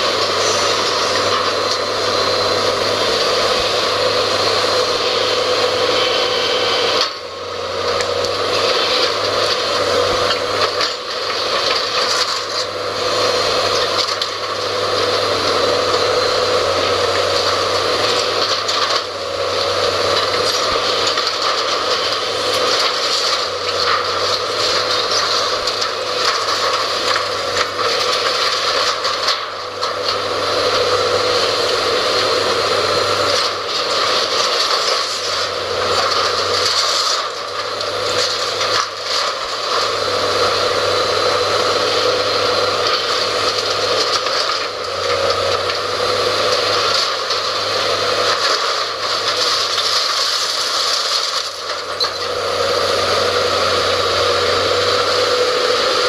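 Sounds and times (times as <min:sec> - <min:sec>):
hydraulic excavator running: 0:00.0 - 0:56.0
metal and debris crunching: 0:08.0 - 0:12.8, 0:17.3 - 0:30.3, 0:33.0 - 0:40.1, 0:42.0 - 0:52.4.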